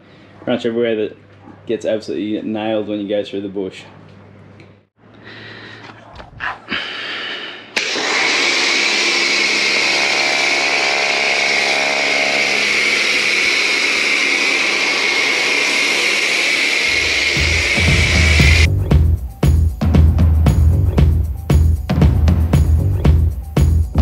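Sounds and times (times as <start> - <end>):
pressure washer pump running: 7.8 - 18.7.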